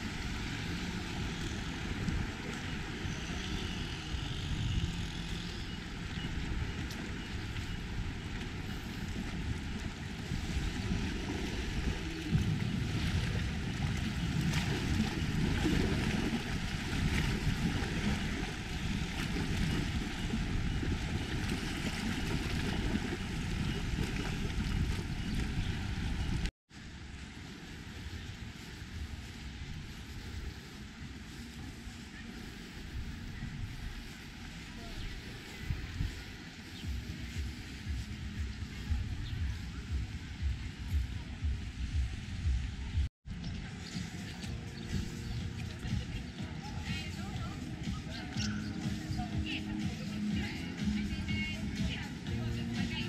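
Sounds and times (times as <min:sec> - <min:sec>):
wind rumbling on microphone: 0:00.0 - 0:53.0
sea washing against rocks: 0:08.2 - 0:26.5.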